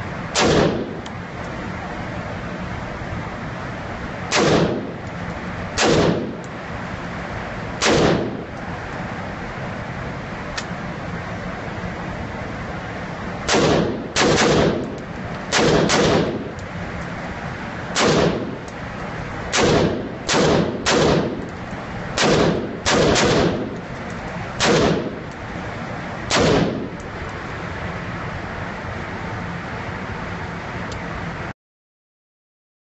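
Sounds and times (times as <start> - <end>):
rifle shots: 0.3 - 1.0, 4.3 - 5.0, 5.8 - 6.4, 7.8 - 8.5, 13.5 - 16.5, 17.9 - 18.6, 19.5 - 21.5, 22.2 - 23.8, 24.6 - 25.2, 26.3 - 27.0.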